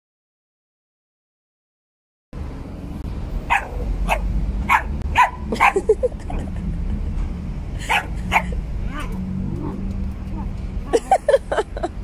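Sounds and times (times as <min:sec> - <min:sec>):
small dog barking: 0:03.5 - 0:05.9, 0:07.9 - 0:09.8
dog yelping: 0:03.5 - 0:06.4, 0:07.9 - 0:09.8.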